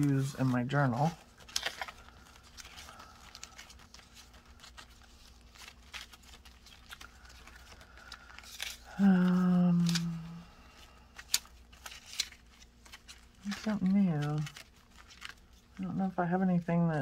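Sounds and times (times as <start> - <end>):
paper rustling and tapping: 0.0 - 10.1, 11.1 - 15.8
woman humming: 8.9 - 10.8.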